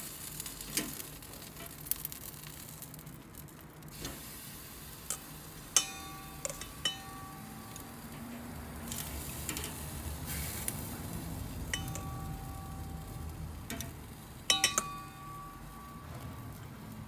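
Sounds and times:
metal tongs clinking on grill grate: 0:00.5 - 0:02.6, 0:05.0 - 0:16.6.

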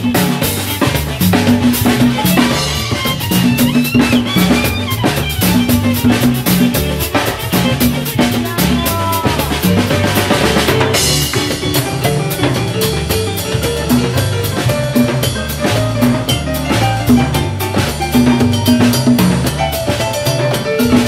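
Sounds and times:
drum rhythm: 0:00.0 - 0:21.0
live band playing: 0:00.0 - 0:21.0.

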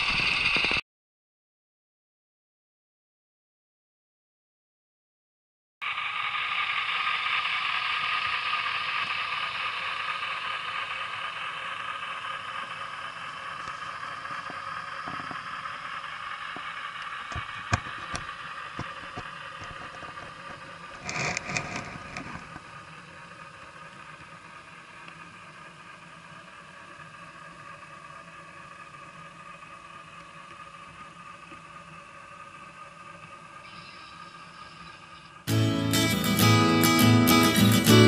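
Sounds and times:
model train motor whirring: 0:00.0 - 0:00.8, 0:05.8 - 0:38.0
clicking and rattling: 0:17.3 - 0:22.6.

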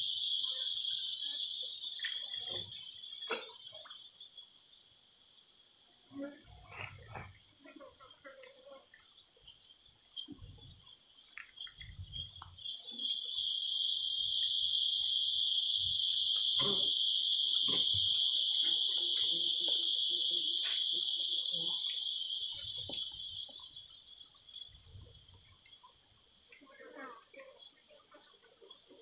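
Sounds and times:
thin high whine: 0:00.0 - 0:08.7, 0:09.3 - 0:27.8
insects calling shrilly: 0:00.0 - 0:29.0.

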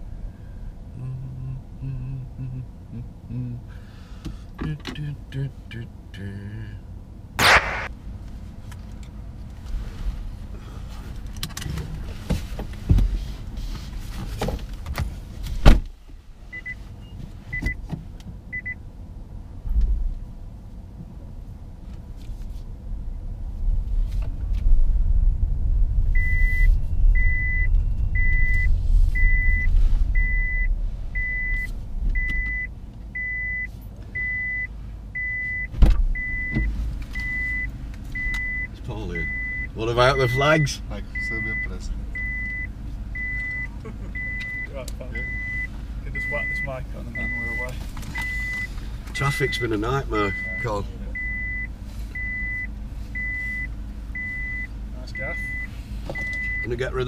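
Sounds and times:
car road rumble: 0:00.0 - 0:57.0
car warning beep: 0:07.4 - 0:07.9, 0:16.5 - 0:17.8, 0:18.5 - 0:18.8, 0:26.1 - 0:57.0
sharp thump: 0:07.4 - 0:07.9, 0:35.7 - 0:36.2.

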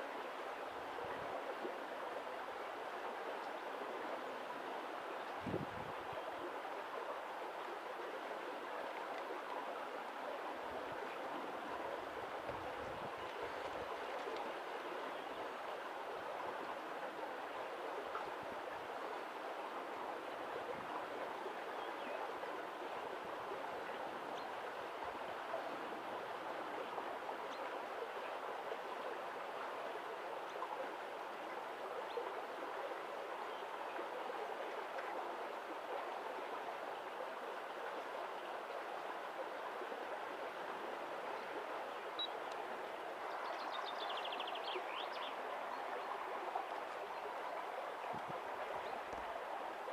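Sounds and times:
stream water rushing: 0:00.0 - 0:49.9.

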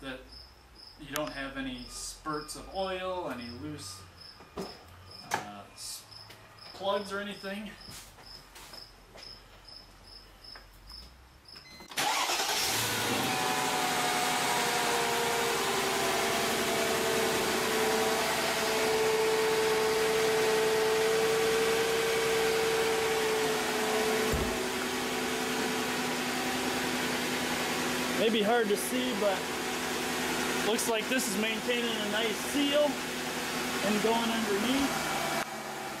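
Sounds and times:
insects chirping: 0:00.2 - 0:01.1, 0:03.4 - 0:12.3
car engine starting and idling: 0:11.8 - 0:36.0.

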